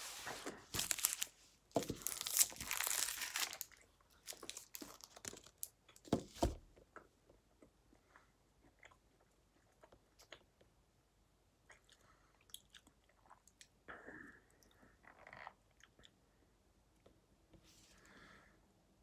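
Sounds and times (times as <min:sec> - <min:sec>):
plastic wrapper crinkling: 0:00.2 - 0:05.8.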